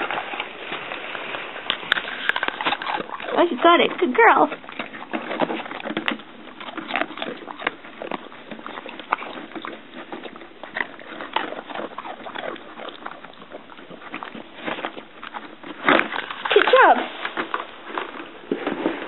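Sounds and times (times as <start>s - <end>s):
small clicks and rustles: 0.0s - 19.0s.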